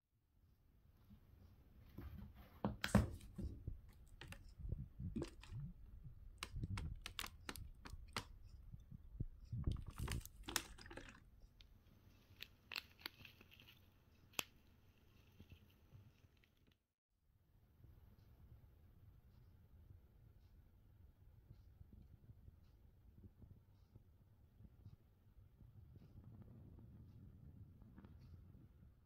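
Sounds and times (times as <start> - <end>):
plastic packet crinkling and tearing: 6.4 - 8.3, 9.7 - 11.2, 12.2 - 14.6.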